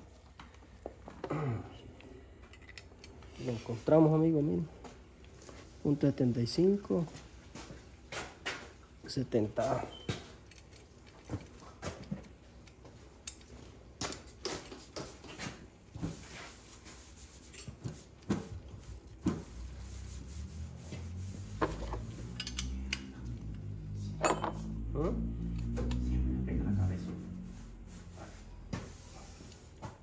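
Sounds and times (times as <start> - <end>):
steady low hum: 15.8 - 29.8.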